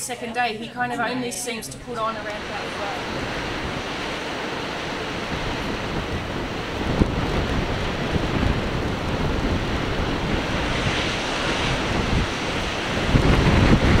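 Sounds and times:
wind buffeting microphone: 1.7 - 14.0.

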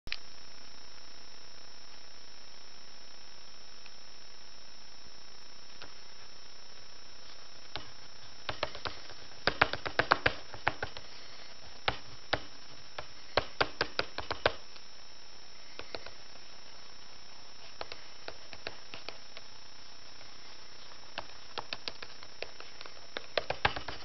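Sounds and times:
steady hiss: 0.1 - 24.0
drawing stick tapping on paper: 7.8 - 11.2, 11.8 - 14.6, 15.8 - 16.2, 17.7 - 19.5, 21.2 - 24.0.

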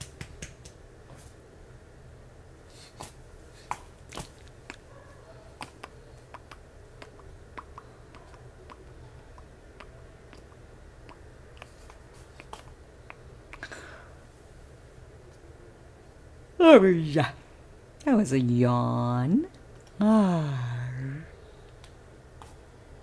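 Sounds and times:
small clicks and smacks: 0.0 - 0.8, 3.0 - 4.9, 5.6 - 13.7, 21.6 - 22.6
low steady hum: 0.0 - 23.0.

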